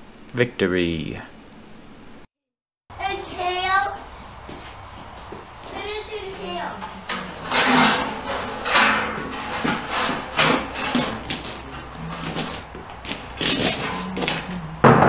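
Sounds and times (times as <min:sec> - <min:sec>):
footsteps crunching on gravel: 0:03.0 - 0:14.8
wooden boards knocking: 0:06.8 - 0:15.0.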